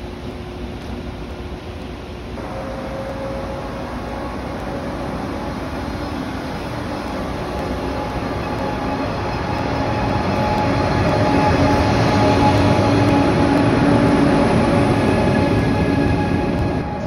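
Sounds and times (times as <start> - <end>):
faint steady whine: 0.0 - 10.4
train rumbling: 0.0 - 17.0.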